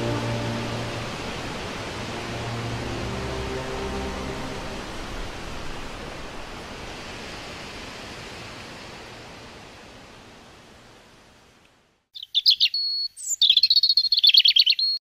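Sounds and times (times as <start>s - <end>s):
string music: 0.0s - 6.4s
steady hissing rush: 0.0s - 11.4s.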